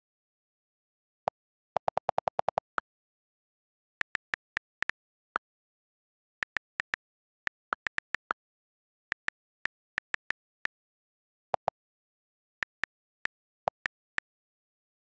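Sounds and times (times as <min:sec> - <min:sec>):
on-screen keyboard clicks: 0:01.8 - 0:02.8, 0:04.0 - 0:05.0, 0:06.4 - 0:08.4, 0:09.1 - 0:10.8, 0:12.6 - 0:14.4.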